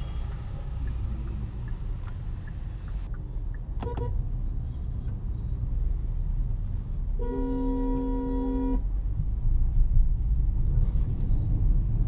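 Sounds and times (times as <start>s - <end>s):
car engine rumble: 0.0s - 12.0s
tyres on road: 0.0s - 12.0s.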